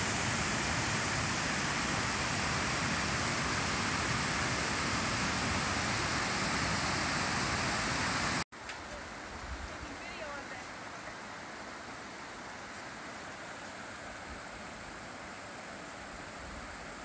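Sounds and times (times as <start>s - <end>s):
waterfall rushing: 0.0s - 8.4s.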